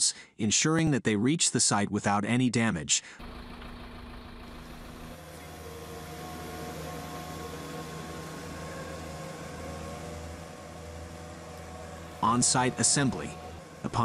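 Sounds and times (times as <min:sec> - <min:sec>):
crane engine humming: 0:03.2 - 0:14.0.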